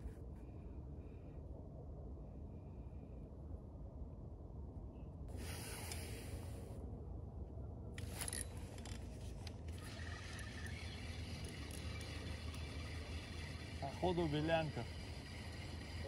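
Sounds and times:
low steady rumble: 0.0 - 16.0
fishing rod and reel rubbing: 8.0 - 16.0.

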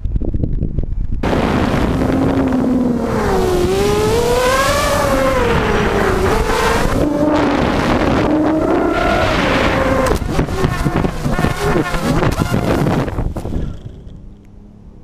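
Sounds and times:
wind rush on microphone: 0.0 - 14.3
drone motors whining: 1.3 - 14.7.

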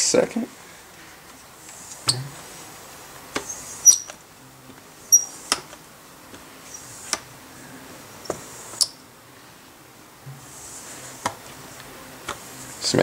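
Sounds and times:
pad squeaking on laptop screen: 3.4 - 4.2, 5.1 - 5.5, 6.7 - 6.9, 8.2 - 9.0.

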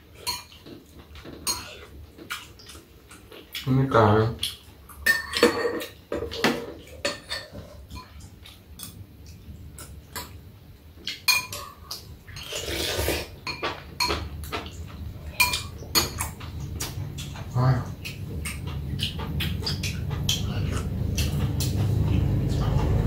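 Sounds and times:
utensils clinking on ceramic bowls: 5.0 - 8.2, 11.2 - 12.6, 13.4 - 14.7.

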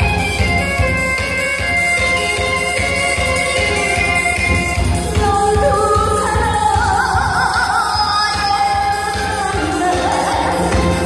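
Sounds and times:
amplified backing music with beat: 0.0 - 11.0
woman singing into microphone: 4.3 - 11.0.

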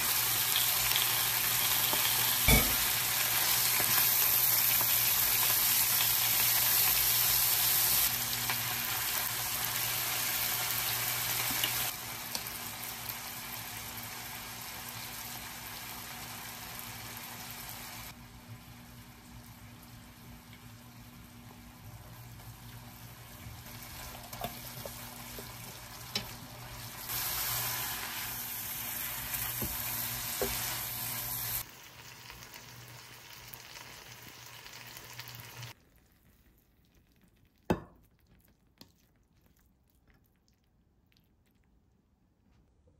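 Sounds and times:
stir-fry sizzling in a pan: 0.0 - 35.8.

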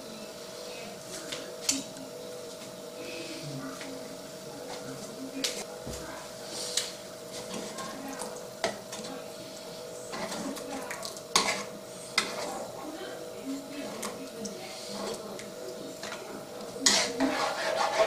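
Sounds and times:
steady low hum: 0.0 - 18.0
ladle scraping metal pan: 11.3 - 12.7, 16.8 - 18.0.

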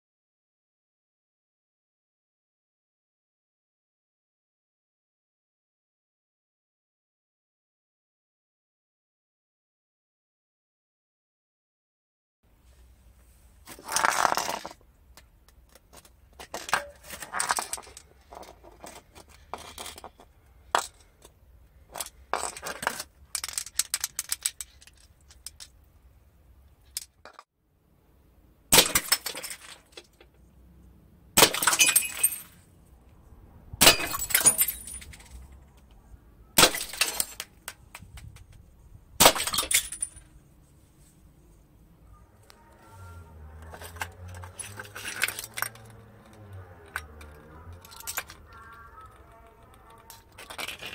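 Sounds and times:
glass bottles shattering: 28.8 - 30.0, 31.4 - 32.6, 33.8 - 35.4, 36.6 - 37.4, 39.2 - 40.2.

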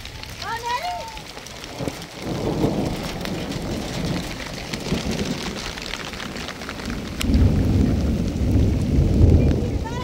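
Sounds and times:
rain drops ticking: 0.0 - 10.0.

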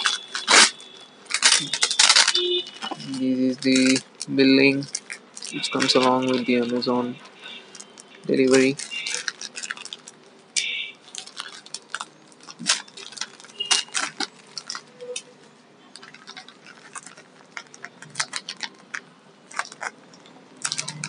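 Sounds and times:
scissors cutting plastic: 0.0 - 4.0, 7.8 - 15.3, 16.0 - 21.0
plastic bag crinkling: 0.0 - 21.0.

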